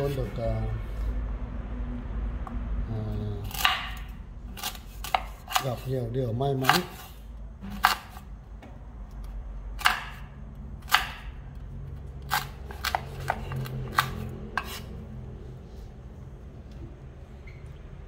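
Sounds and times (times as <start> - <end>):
knife chopping fruit: 3.3 - 11.6, 12.2 - 14.9.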